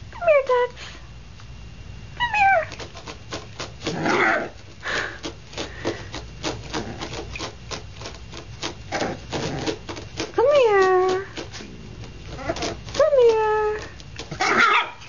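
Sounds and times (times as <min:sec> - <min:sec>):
puppy whining: 0:02.2 - 0:02.8, 0:03.9 - 0:05.1, 0:11.6 - 0:15.0
puppy huffing: 0:03.8 - 0:07.5, 0:11.5 - 0:13.0.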